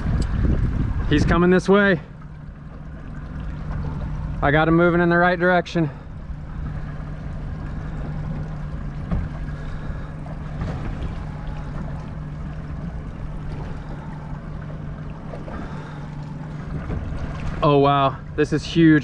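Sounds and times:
wind noise: 0.0 - 1.5
outboard motor idling: 0.0 - 19.0
water noise: 0.0 - 19.0.

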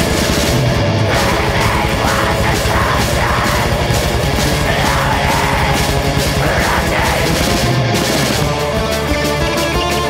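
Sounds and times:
distorted guitars: 0.0 - 10.0
rapid drumming: 0.0 - 10.0
harsh screamed vocals: 1.0 - 7.9.

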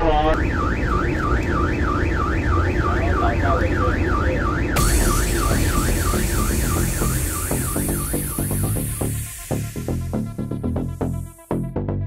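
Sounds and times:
electronic siren yelping: 0.2 - 11.4
low rumble: 0.3 - 12.0
loud rushing hiss: 4.8 - 11.6.

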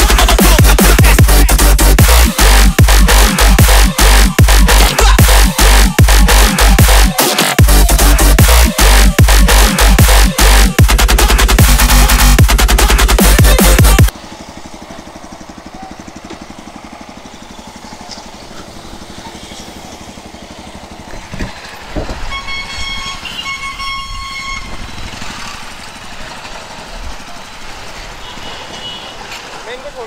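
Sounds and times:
motorcycle engine idling: 0.0 - 30.0
vehicle horn blasts: 22.2 - 25.0, 28.2 - 29.3.

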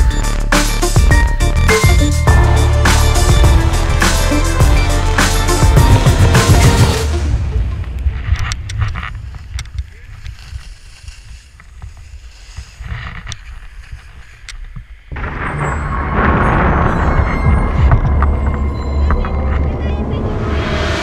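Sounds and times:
wind rumbling on microphone: 7.5 - 21.0
skis sliding on snow: 8.0 - 15.1.

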